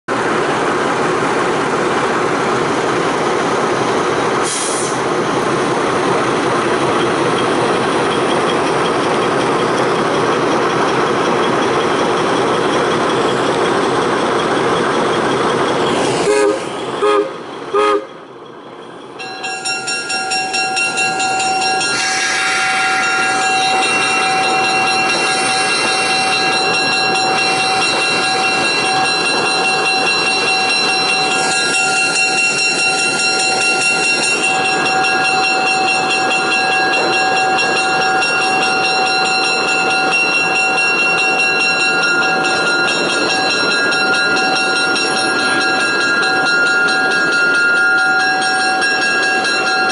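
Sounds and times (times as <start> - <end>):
diesel locomotive running: 0.1 - 49.9
locomotive whine: 0.1 - 49.9
locomotive horn toots: 16.2 - 18.2, 21.8 - 24.2.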